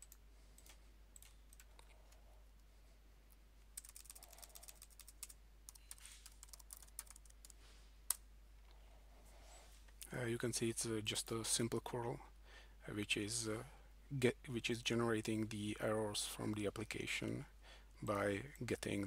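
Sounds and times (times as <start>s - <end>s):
keystrokes on computer keyboard: 0.0s - 2.2s, 3.8s - 8.2s.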